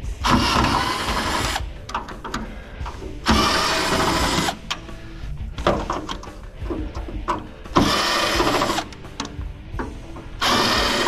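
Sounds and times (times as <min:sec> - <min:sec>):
cordless drill unscrewing screws: 0:03.2 - 0:04.8, 0:07.8 - 0:09.4.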